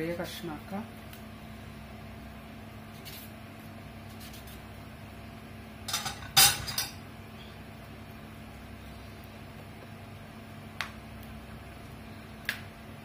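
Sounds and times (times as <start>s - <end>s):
steady low hum: 0.0s - 13.0s
kitchen utensils clattering: 5.9s - 7.0s.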